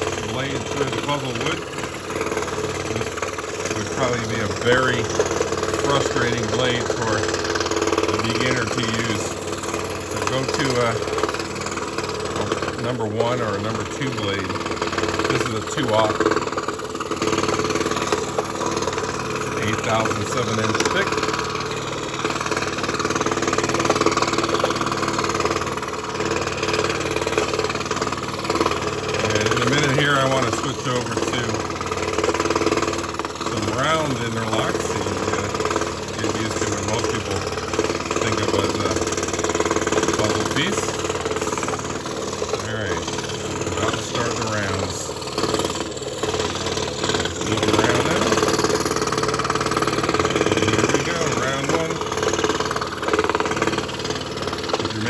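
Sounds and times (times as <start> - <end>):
scroll saw cutting plywood: 0.0 - 55.0.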